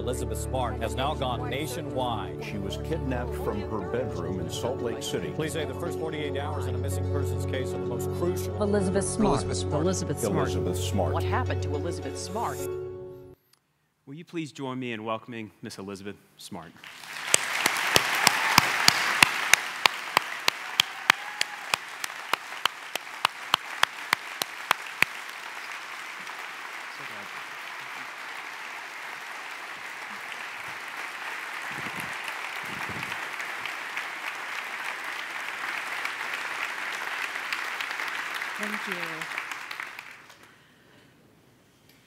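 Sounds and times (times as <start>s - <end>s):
close sharp hand claps: 16.8s - 40.6s
audience applauding: 16.8s - 40.7s.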